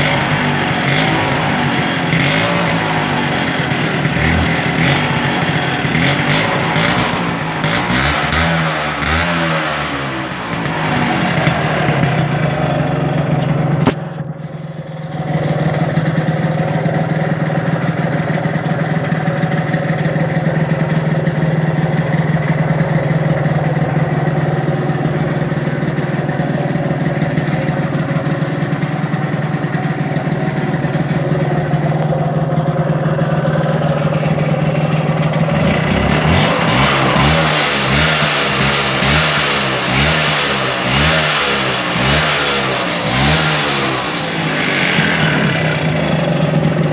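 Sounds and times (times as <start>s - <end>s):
scooter engine idling and revving: 0.0s - 46.9s.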